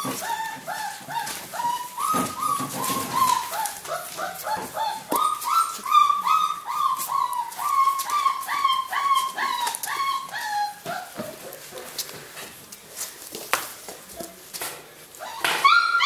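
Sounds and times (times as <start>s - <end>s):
puppy whining yelps: 0.0s - 11.5s, 15.2s - 16.0s
puppies scuffling on floor: 0.0s - 15.8s.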